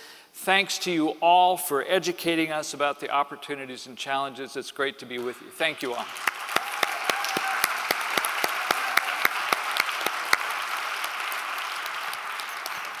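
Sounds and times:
audience applauding: 0:05.9 - 0:13.0.

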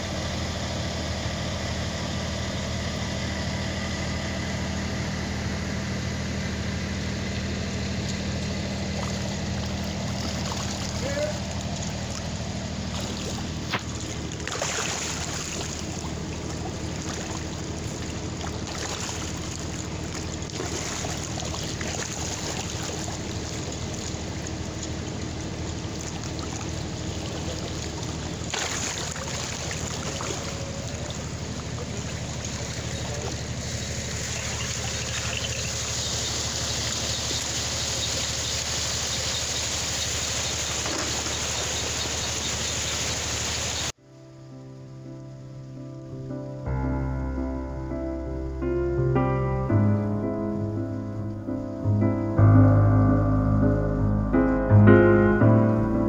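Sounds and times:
low machine hum: 0:00.0 - 0:56.0
water churning and splashing: 0:07.1 - 0:44.0.

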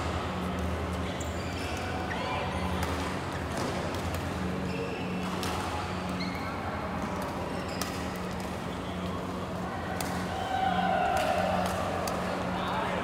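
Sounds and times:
shoes squeaking on court: 0:05.9 - 0:06.6, 0:07.5 - 0:09.0.

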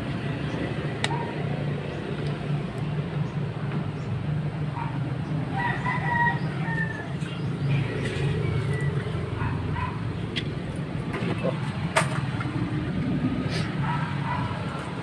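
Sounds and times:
rooster crowing: 0:05.5 - 0:07.5.

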